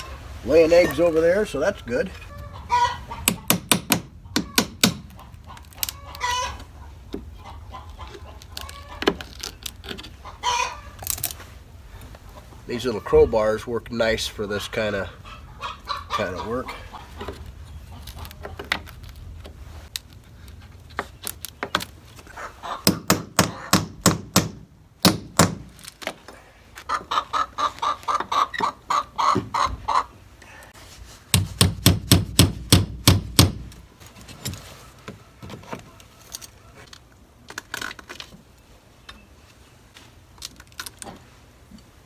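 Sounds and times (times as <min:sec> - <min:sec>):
hens clucking: 0:00.0 - 0:03.6, 0:04.2 - 0:09.2, 0:10.0 - 0:11.0, 0:12.2 - 0:18.8, 0:22.2 - 0:23.8, 0:26.8 - 0:30.8.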